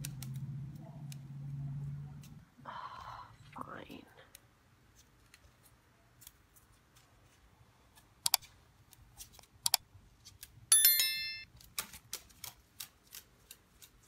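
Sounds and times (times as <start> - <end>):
bell-like notification chime: 10.7 - 11.5.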